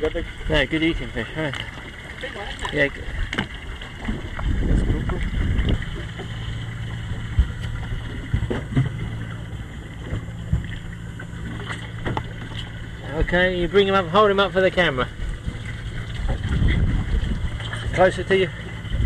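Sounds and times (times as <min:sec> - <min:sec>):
outboard motor idling: 0:00.0 - 0:19.0
wind rumble on microphone: 0:04.0 - 0:13.4, 0:15.0 - 0:19.0.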